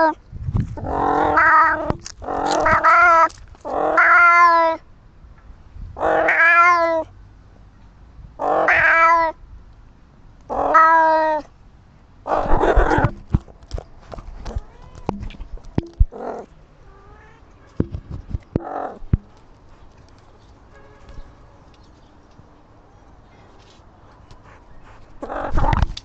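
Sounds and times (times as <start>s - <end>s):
cat meowing loudly: 0.8s - 4.8s, 6.0s - 7.1s, 8.4s - 9.4s, 10.5s - 11.5s, 14.5s - 15.1s, 16.2s - 17.6s.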